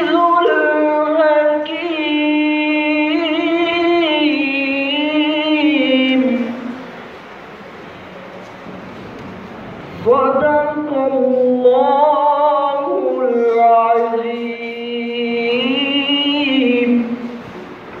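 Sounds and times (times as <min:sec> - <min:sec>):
young man chanting melodically: 0:00.0 - 0:06.9, 0:10.0 - 0:17.5.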